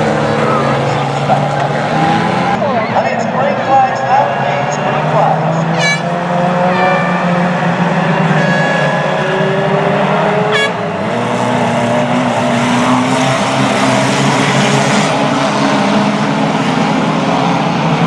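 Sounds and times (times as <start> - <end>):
small car engines racing: 0.0 - 18.0
short high horn toot: 5.7 - 7.6, 10.5 - 10.8.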